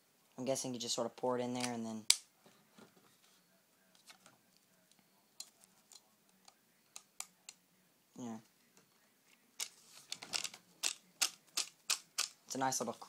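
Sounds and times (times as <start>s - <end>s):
rifle magazine clicks: 10.4s - 12.4s.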